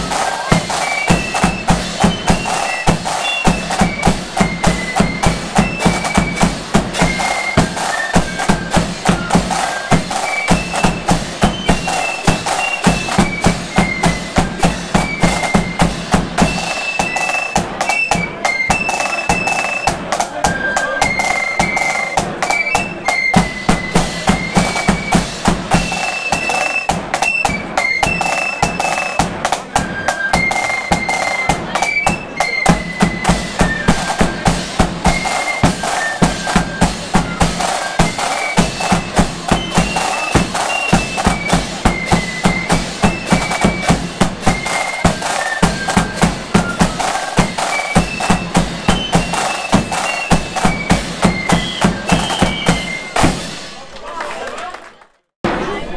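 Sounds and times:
bass drum: 0.0 - 16.6, 23.4 - 25.9, 31.6 - 53.8
flute melody: 0.0 - 53.9
snare drums: 0.0 - 54.6.

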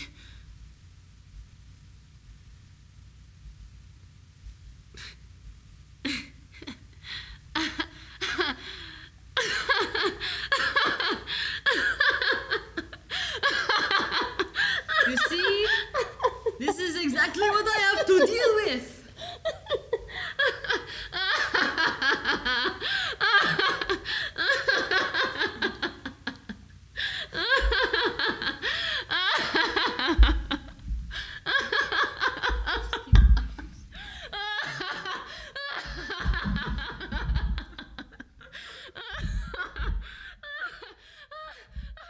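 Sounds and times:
person laughing: 9.4 - 42.0.

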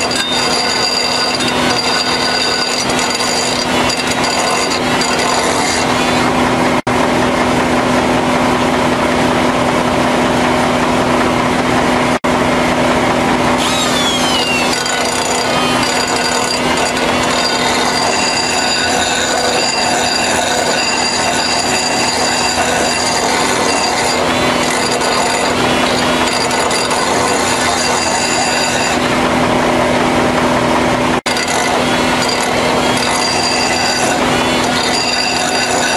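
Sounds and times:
high squealing of grinding: 0.0 - 6.4, 13.6 - 29.2, 31.3 - 35.9
die grinder grinding steel: 0.0 - 6.6, 13.6 - 29.9, 31.2 - 35.9.

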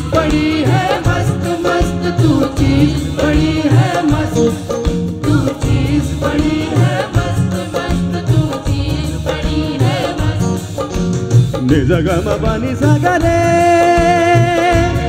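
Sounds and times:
live band playing upbeat song: 0.0 - 15.0
pulsing drum beat: 0.0 - 15.0.

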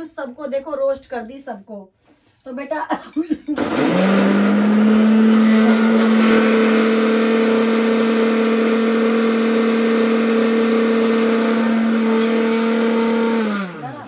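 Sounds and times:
mixer grinder motor running: 3.6 - 14.0.

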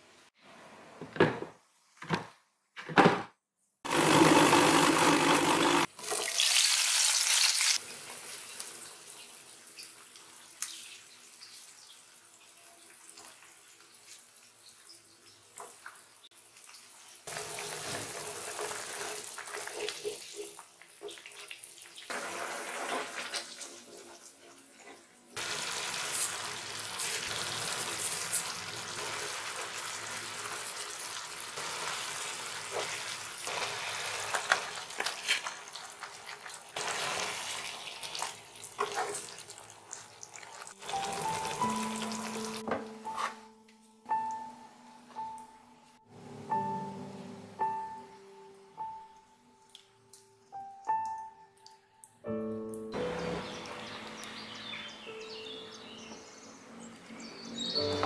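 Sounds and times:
sauce sizzling and bubbling: 25.4 - 42.6.

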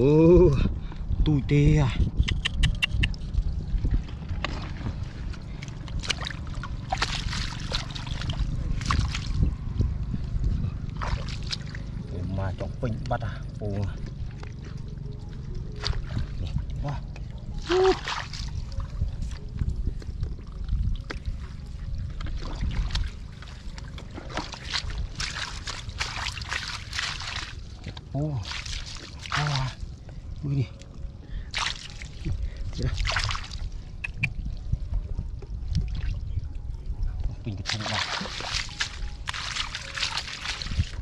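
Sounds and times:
steady low rumble: 0.0 - 41.0
water splashing in pond: 4.4 - 9.5, 10.9 - 12.0, 17.5 - 18.9, 22.3 - 27.8, 28.4 - 29.8, 31.5 - 34.3, 37.6 - 41.0.

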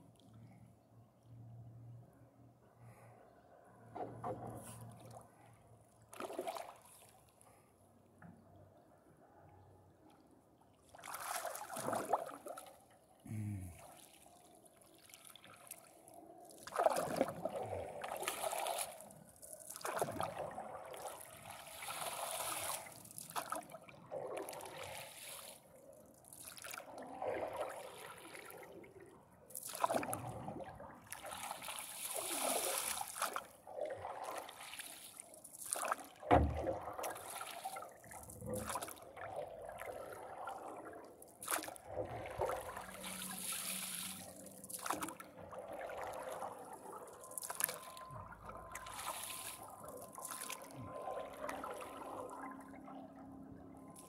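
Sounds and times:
paddle splashing through water: 6.1 - 7.2, 10.9 - 12.7, 16.6 - 19.0, 19.7 - 25.6, 26.3 - 28.6, 29.5 - 52.4.

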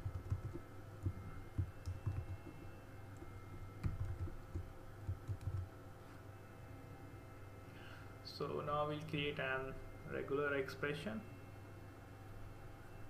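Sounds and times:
typing on computer keyboard: 0.0 - 5.7.

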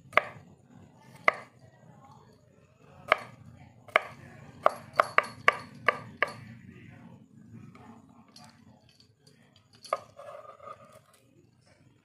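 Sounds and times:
knife chopping on cutting board: 3.1 - 3.3, 3.9 - 6.4.

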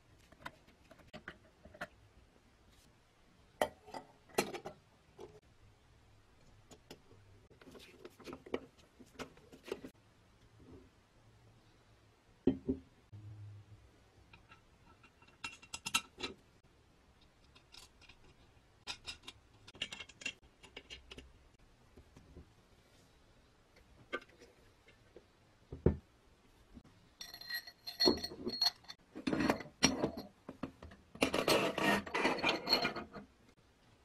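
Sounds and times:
metal parts clinking and rattling: 27.2 - 30.4.

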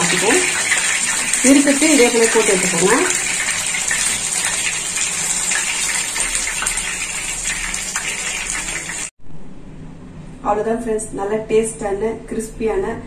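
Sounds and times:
prawns deep-frying in oil: 0.0 - 9.1.

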